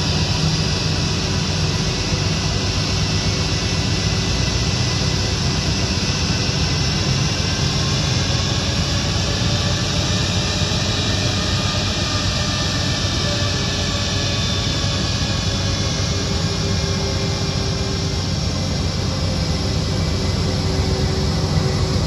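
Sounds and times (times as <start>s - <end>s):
jet engines rumbling and whining: 0.0s - 22.0s.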